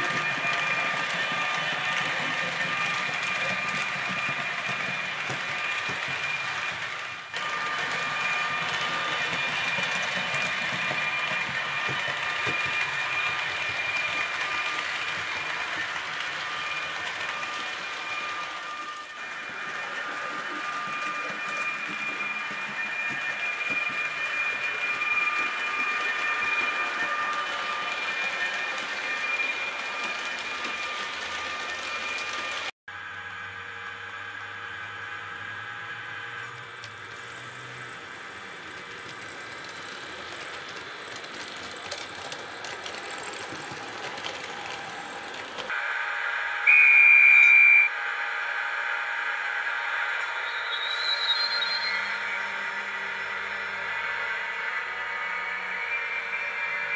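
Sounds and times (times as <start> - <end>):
model train motor whine: 0.0 - 56.9
wheels clicking over track: 36.4 - 45.8.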